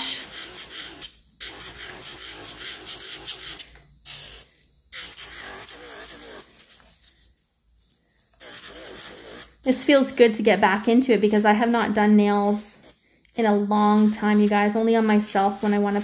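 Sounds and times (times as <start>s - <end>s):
electric nail file grinding: 0.0s - 16.0s.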